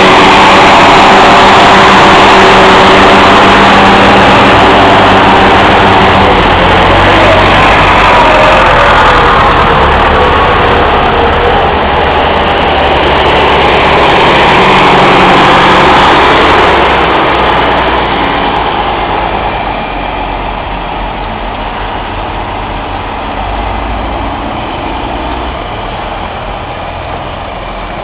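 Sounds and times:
tractor engines driving past: 0:00.0 - 0:28.0.

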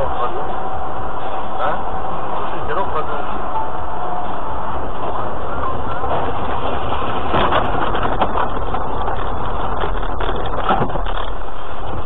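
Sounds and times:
car engine and road noise: 0:00.0 - 0:12.0
knocks and rattles: 0:05.9 - 0:12.0.

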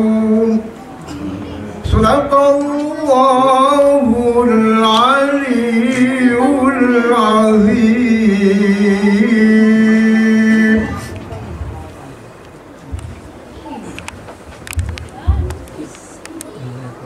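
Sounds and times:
man chanting: 0:00.0 - 0:00.7, 0:01.8 - 0:11.2.

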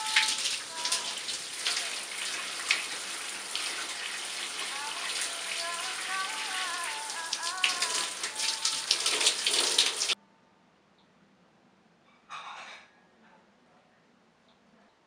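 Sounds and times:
shower spray hissing: 0:00.0 - 0:10.2
water splashes: 0:00.0 - 0:10.2.

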